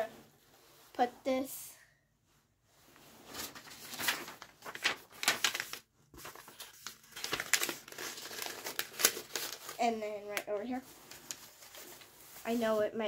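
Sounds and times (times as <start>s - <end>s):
paper crinkling and rustling: 3.2s - 12.7s.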